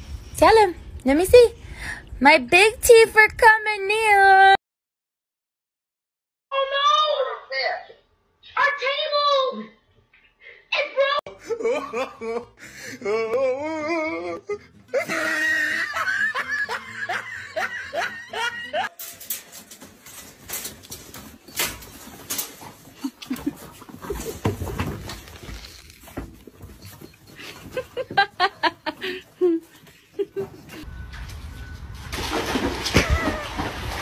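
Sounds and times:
laughter: 0:11.4 - 0:12.6, 0:15.0 - 0:18.9, 0:23.0 - 0:23.6, 0:27.4 - 0:30.8.

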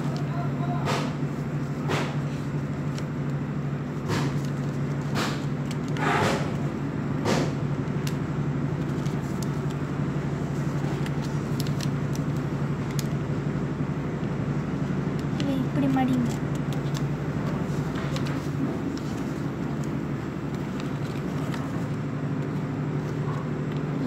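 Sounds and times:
steady low hum: 0:00.0 - 0:24.0
paper rustling and crinkling: 0:01.3 - 0:03.2, 0:03.8 - 0:06.7, 0:08.7 - 0:13.3, 0:15.2 - 0:24.0.

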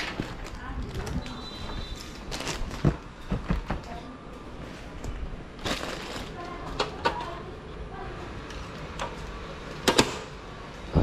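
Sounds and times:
circuit breakers clicking on: 0:08.5 - 0:10.4.

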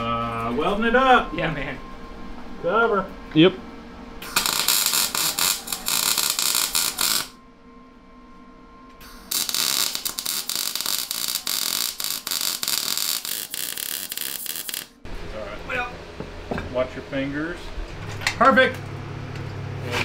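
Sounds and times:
welder arc crackling: 0:04.2 - 0:07.4, 0:09.0 - 0:15.0.

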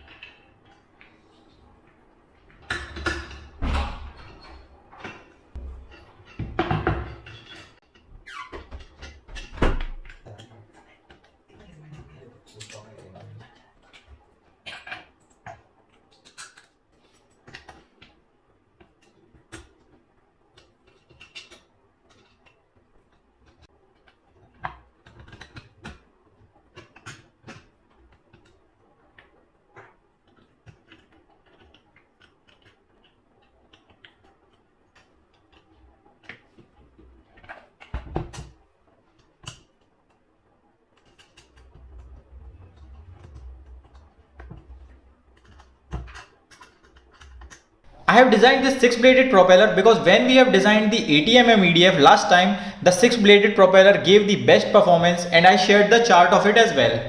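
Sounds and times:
plastic parts and tools clicking: 0:43.4 - 0:47.7.

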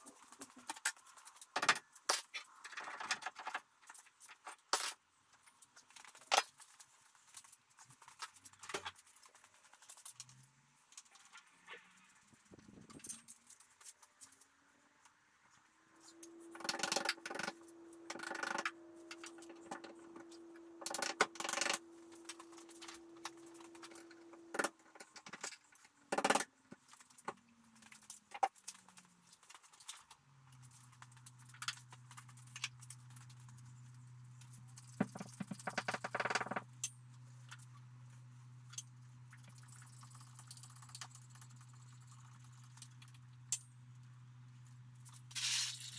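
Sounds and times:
hand tools and metal parts clinking: 0:12.2 - 0:14.7, 0:45.0 - 0:45.9.

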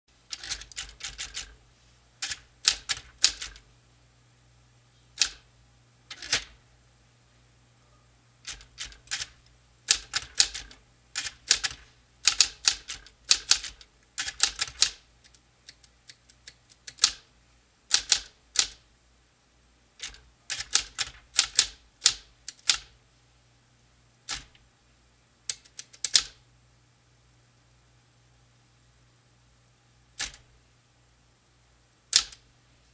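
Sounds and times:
low steady hum: 0:00.1 - 0:25.7, 0:26.3 - 0:32.9
typewriter keys clacking: 0:00.3 - 0:01.6, 0:02.2 - 0:03.6, 0:05.2 - 0:05.4, 0:06.1 - 0:06.5, 0:08.5 - 0:17.2, 0:17.9 - 0:18.8, 0:20.0 - 0:22.9, 0:24.3 - 0:24.6, 0:25.5 - 0:26.4, 0:30.2 - 0:30.4, 0:32.2 - 0:32.4.

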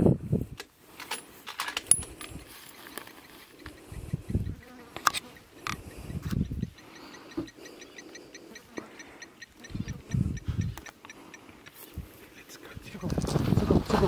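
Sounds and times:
insect chirping: 0:02.1 - 0:12.9.

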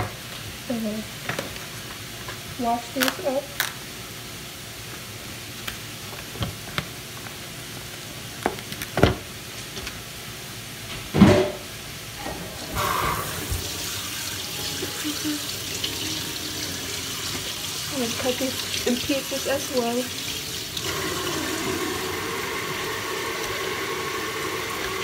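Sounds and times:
tap running: 0:12.6 - 0:15.0, 0:17.0 - 0:25.0
ham sizzling in a pan: 0:12.6 - 0:25.0.

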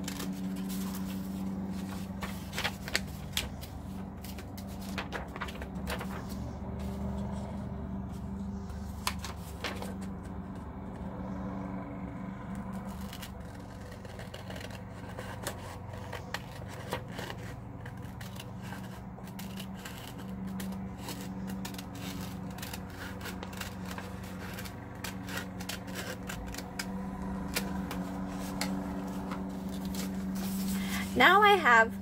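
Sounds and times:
scissors snipping paper: 0:00.0 - 0:07.4, 0:12.5 - 0:30.7
paper rustling: 0:00.0 - 0:10.7, 0:12.8 - 0:31.2.

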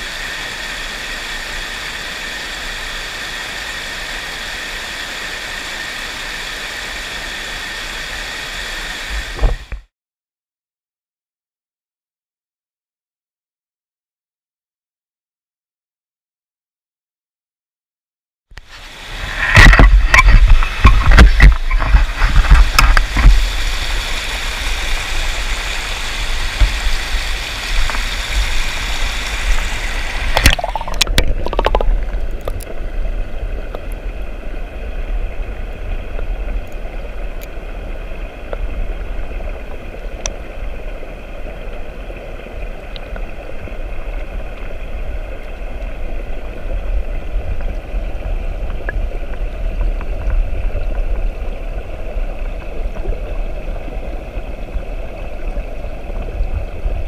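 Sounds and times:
stream rushing over rocks: 0:18.6 - 0:57.0.

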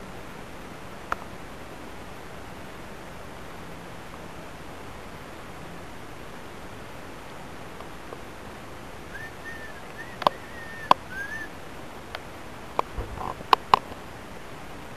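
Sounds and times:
steady hiss: 0:00.0 - 0:14.9
sharp knocks: 0:12.8 - 0:13.8.

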